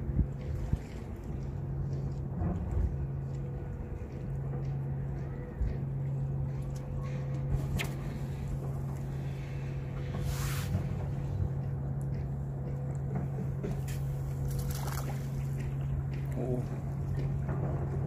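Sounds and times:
low engine drone: 0:00.0 - 0:18.0
fishing rod swish: 0:10.2 - 0:10.9.

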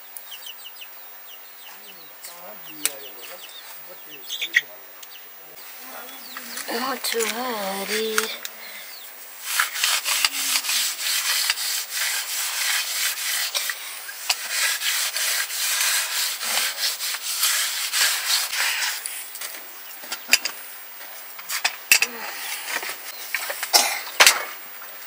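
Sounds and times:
rough scraping strokes: 0:09.3 - 0:19.3.

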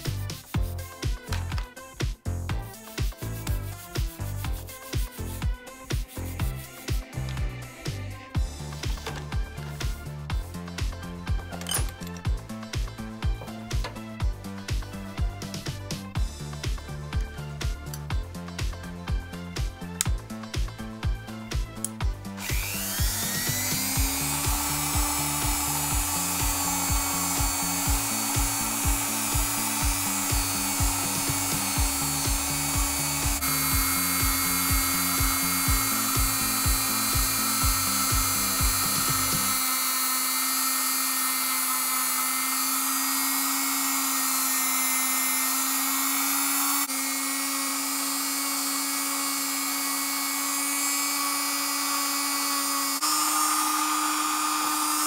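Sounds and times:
background music with beat: 0:00.0 - 0:40.3
rotary tool whining: 0:21.8 - 0:55.0.

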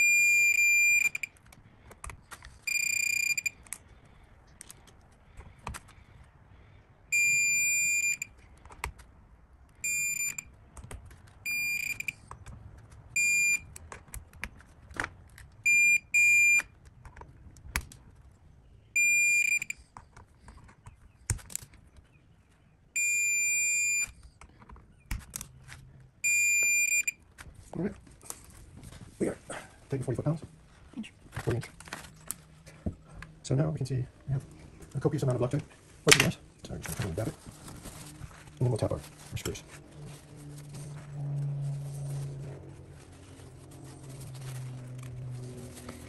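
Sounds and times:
torque wrench beeping: 0:00.0 - 0:01.3, 0:02.7 - 0:03.6, 0:07.1 - 0:08.3, 0:09.8 - 0:10.5, 0:11.5 - 0:12.2, 0:19.0 - 0:19.8, 0:26.2 - 0:27.2.

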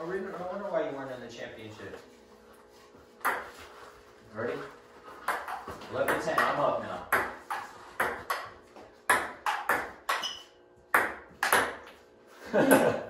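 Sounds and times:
table tennis ball taps: 0:05.3 - 0:08.5, 0:09.1 - 0:10.4.

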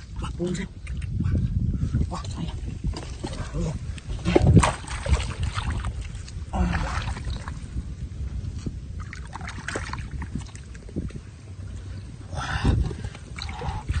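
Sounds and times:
muddy water splashing: 0:03.0 - 0:08.0, 0:08.9 - 0:11.2, 0:12.9 - 0:14.0.

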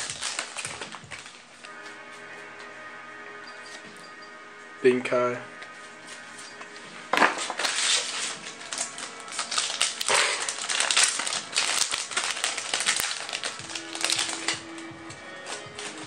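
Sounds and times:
trading cards flicking and scraping: 0:05.6 - 0:16.0.

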